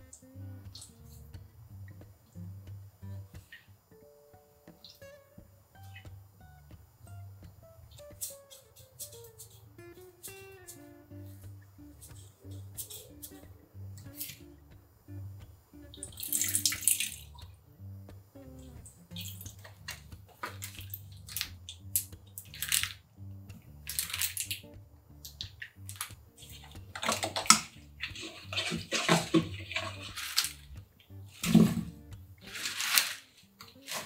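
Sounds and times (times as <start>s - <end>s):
liquid splashing into steel bowl: 16.0s - 17.5s, 23.9s - 24.6s, 25.6s - 34.0s
wooden spoon stirring wet mixture: 25.3s - 34.0s.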